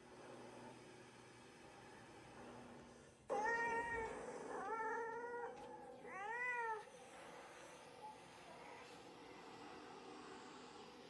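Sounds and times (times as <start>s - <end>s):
cat meowing: 3.3s - 6.8s.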